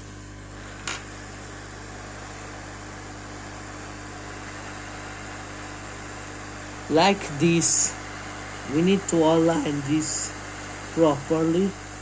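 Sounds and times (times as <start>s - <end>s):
hot air station hissing: 0.0s - 12.0s
low steady hum: 0.0s - 12.0s.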